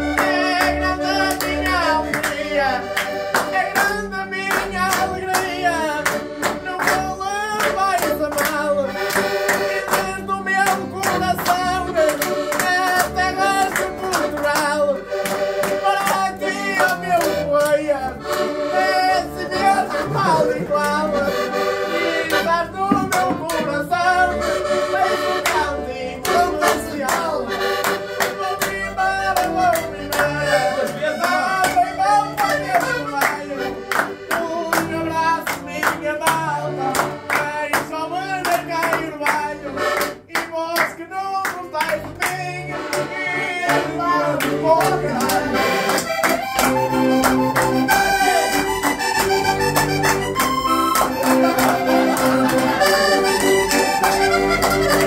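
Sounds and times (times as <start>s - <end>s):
hand-clapping: 0.0s - 24.2s, 24.9s - 55.0s
accordions playing folk tune: 0.0s - 55.0s.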